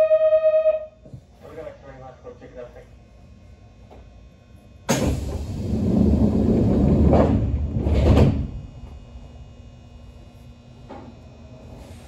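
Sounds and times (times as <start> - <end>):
train doors sliding: 4.9 - 9.0.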